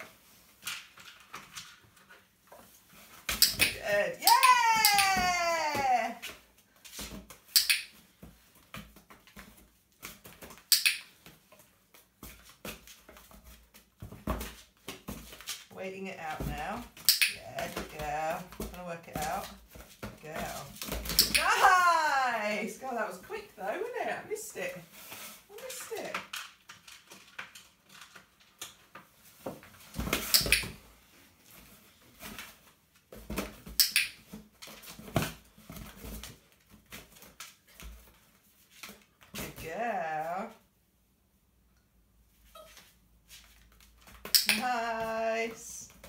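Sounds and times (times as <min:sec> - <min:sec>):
claws clicking on hard floor: 0:03.1 - 0:15.7, 0:17.0 - 0:21.6, 0:33.2 - 0:39.0.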